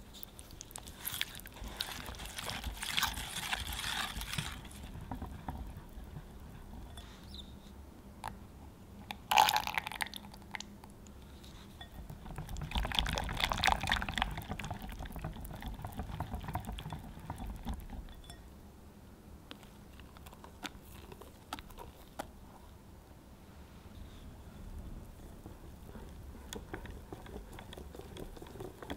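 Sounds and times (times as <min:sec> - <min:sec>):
whisk swishing in bowl: 0:01.6 - 0:07.0, 0:11.7 - 0:18.4, 0:25.1 - 0:28.9.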